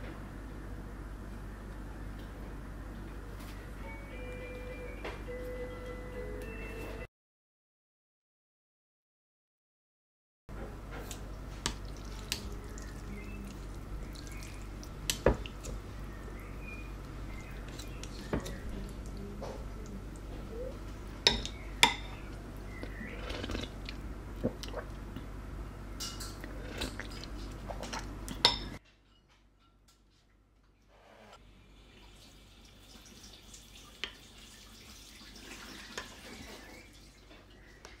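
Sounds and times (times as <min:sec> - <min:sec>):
broth dripping: 0:11.4 - 0:23.0
liquid sloshing in a bowl: 0:11.5 - 0:22.1
spoon clinking on ceramic bowl: 0:21.3 - 0:22.2.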